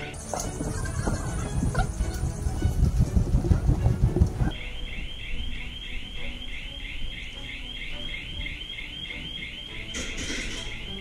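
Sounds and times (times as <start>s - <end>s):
electronic alarm chirping: 0.0s - 2.1s, 4.5s - 11.0s.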